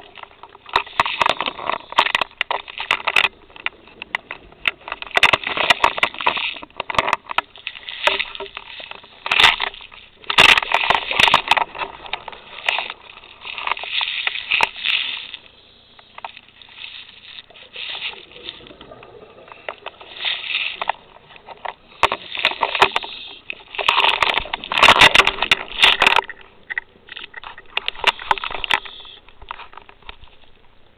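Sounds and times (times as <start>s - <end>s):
underwater bubbling: 0.0s - 29.9s
crackly clicks: 0.0s - 30.9s.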